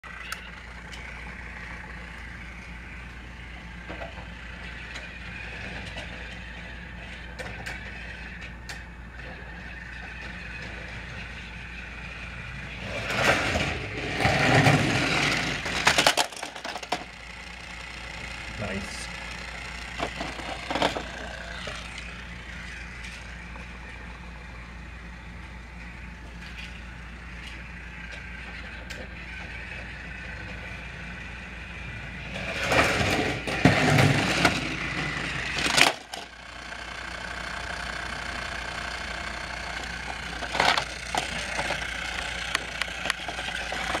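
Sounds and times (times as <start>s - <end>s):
toy train motor whir: 0.1s - 24.4s, 25.4s - 44.0s
clattering noise: 13.0s - 17.1s, 20.0s - 21.7s.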